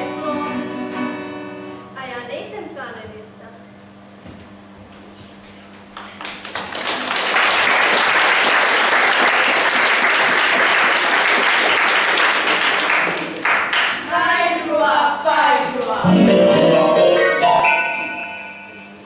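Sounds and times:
audience applauding: 5.9 - 14.1.

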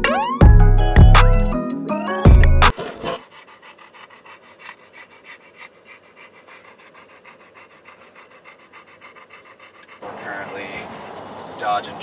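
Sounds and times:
dog panting: 2.7 - 11.8.

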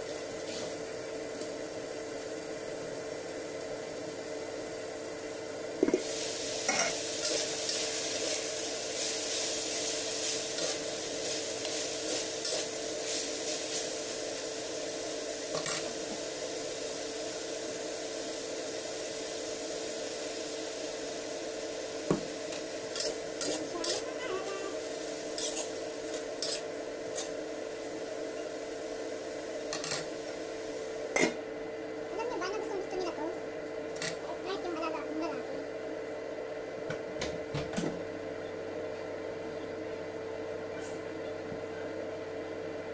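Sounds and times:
food sizzling in a wok: 0.0 - 36.6
steady hum: 0.0 - 42.9
metal spatula scraping a pan: 25.4 - 25.7, 26.4 - 27.3.

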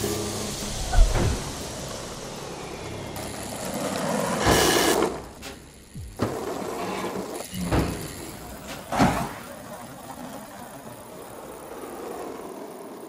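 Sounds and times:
loud rushing noise: 0.0 - 6.2
cogwheels grinding rumble: 0.0 - 13.0.

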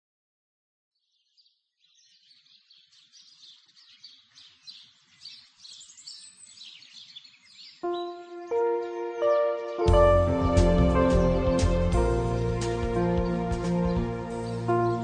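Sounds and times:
birds chirping: 1.0 - 15.0.

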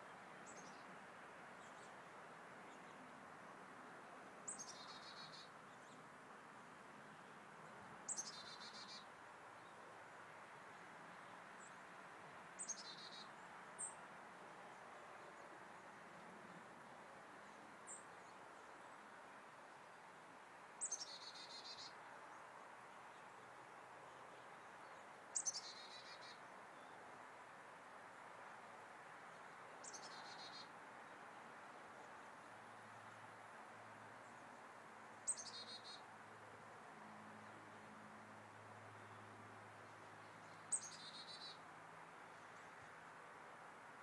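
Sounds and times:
faint outdoor hiss: 0.0 - 44.0
songbird singing trills: 4.5 - 6.0, 8.1 - 9.1, 12.6 - 14.0, 20.8 - 22.0, 24.8 - 27.0, 29.8 - 30.7, 35.2 - 36.0, 40.2 - 41.6.

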